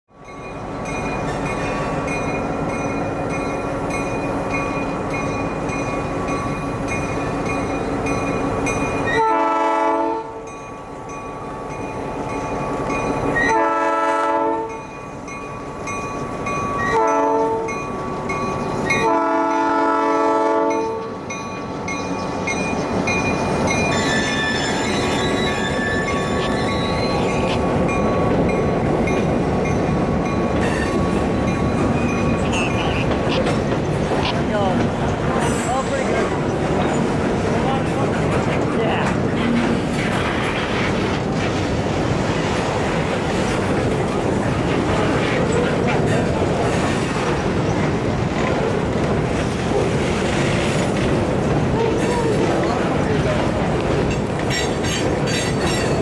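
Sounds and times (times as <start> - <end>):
train wheel noise: 0.1 - 56.0
train air horn: 9.1 - 10.4, 13.4 - 14.7, 16.9 - 17.7, 19.0 - 21.1.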